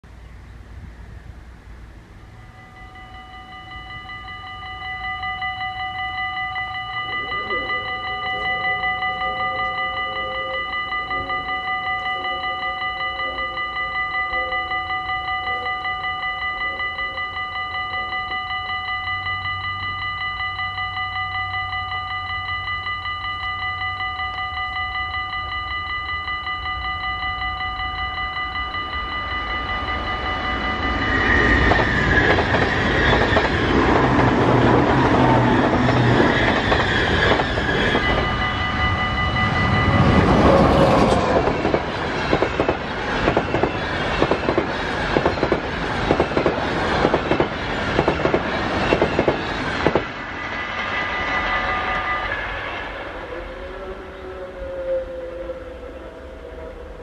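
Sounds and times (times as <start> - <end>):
electric train rushing past: 0.2 - 57.0
level crossing warning bells: 2.1 - 57.0
train wheels clacking on rail joints: 29.8 - 51.5.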